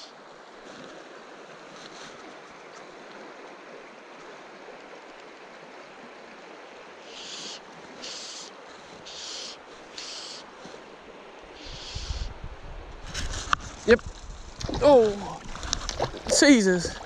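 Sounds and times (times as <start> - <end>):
river water rushing: 0.0 - 12.2, 14.6 - 17.0
short high hissing bursts: 9.1 - 10.4, 11.6 - 12.3.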